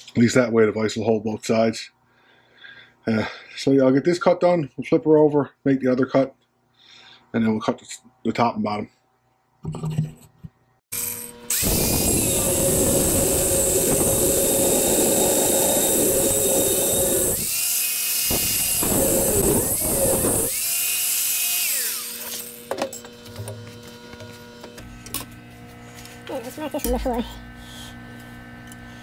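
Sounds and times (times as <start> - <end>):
angle grinder cutting steel: 10.9 - 29.0
grinder motor whine: 11.0 - 29.0.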